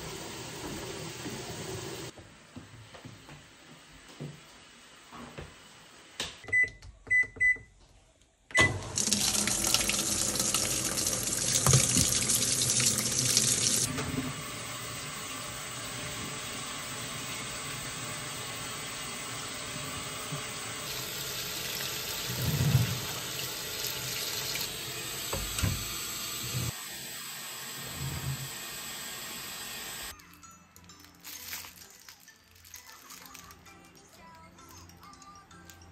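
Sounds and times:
washing machine beeping: 6.4 - 7.7, 8.5 - 26.7
water rushing into drum: 8.7 - 13.9, 20.7 - 24.8.

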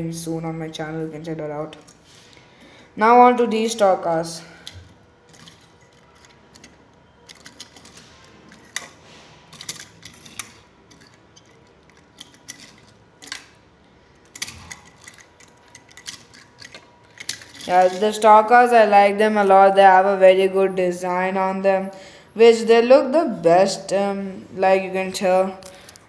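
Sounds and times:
toy cars clicking on stone: 4.6 - 18.2.

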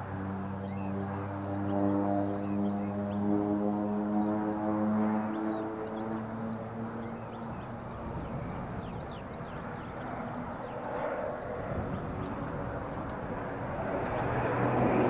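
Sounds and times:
propeller plane engine drone: 0.0 - 15.0
small birds chirping: 0.6 - 14.4.

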